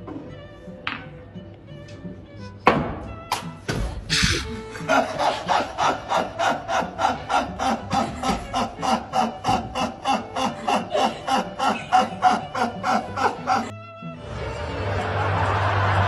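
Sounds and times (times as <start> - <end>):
man wheezing laughter: 4.1 - 13.7.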